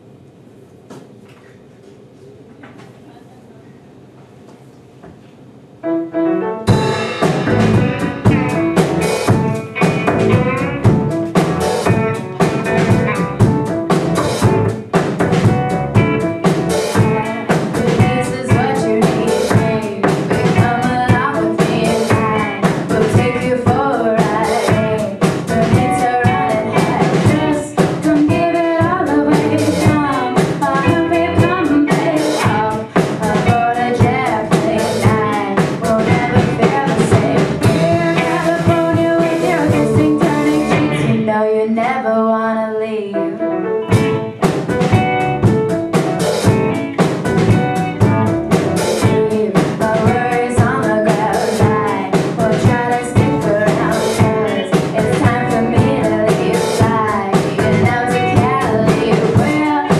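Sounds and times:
piano: 5.7 - 59.9
electric guitar: 6.2 - 41.6, 43.2 - 59.9
drum kit: 6.5 - 41.8, 43.6 - 59.9
bass guitar: 6.7 - 41.5, 43.7 - 59.9
woman singing: 16.9 - 43.4, 48.9 - 59.9.

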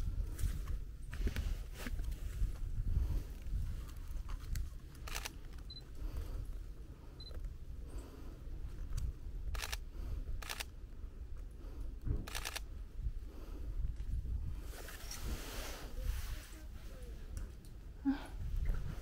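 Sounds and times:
handling and wind rumble: 0.0 - 19.0
camera shutter clicks: 5.0 - 5.4, 9.5 - 9.8, 10.4 - 10.7, 12.3 - 12.7.

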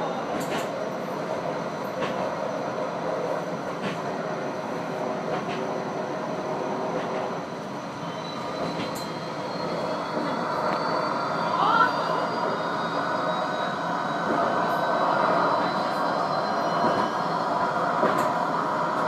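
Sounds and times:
tram wheels rumbling: 0.0 - 19.0.

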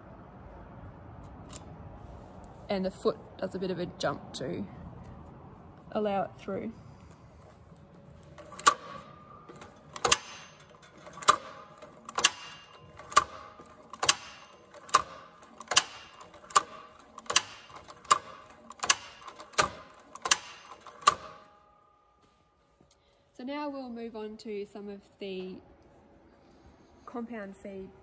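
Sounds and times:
sewing machine metallic clacks: 8.2 - 21.6.

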